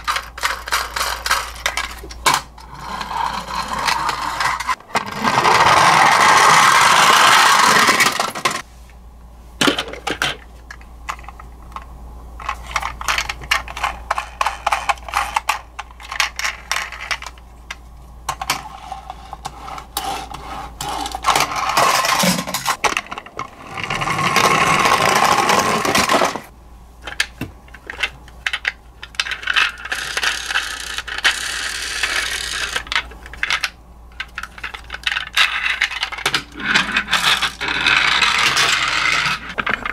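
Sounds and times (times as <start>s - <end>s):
toy wheels rolling down wooden ramp: 0.0s - 8.6s, 18.4s - 26.5s, 29.1s - 39.9s
plastic toys clattering on table: 18.3s - 23.5s, 24.2s - 39.9s.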